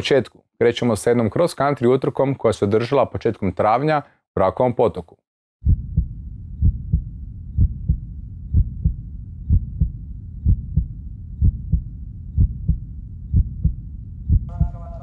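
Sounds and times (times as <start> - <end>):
heartbeat thumps: 5.6 - 15.0
low rumble: 5.6 - 15.0.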